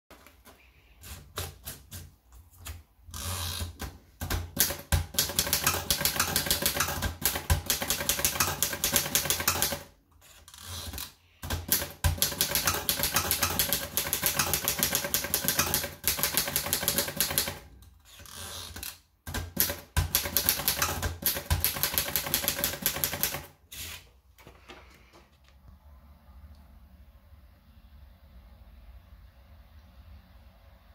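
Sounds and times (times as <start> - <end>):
typewriter keys clicking: 4.2 - 9.9, 11.4 - 17.6, 19.3 - 23.5.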